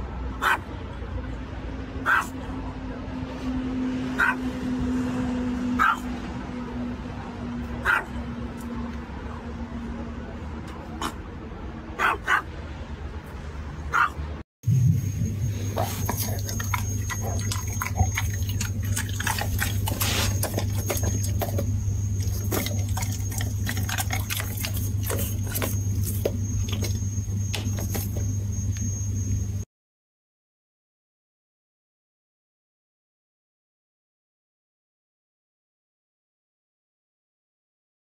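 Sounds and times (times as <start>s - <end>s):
low hum with high tone: 12.6s - 29.7s
dog licking lips: 15.8s - 28.3s.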